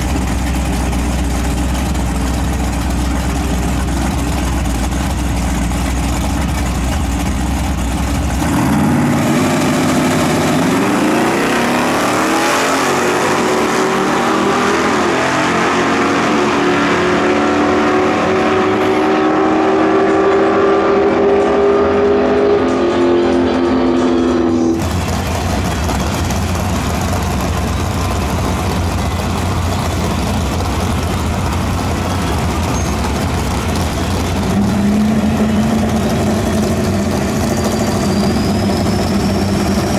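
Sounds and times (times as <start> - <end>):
drag car engines idling: 0.0 - 12.1, 23.4 - 39.9
engines revving under full throttle: 0.0 - 39.9.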